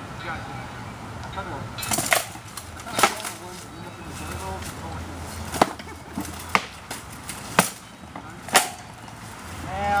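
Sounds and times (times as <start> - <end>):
sharp wooden knocks: 5.5 - 8.8.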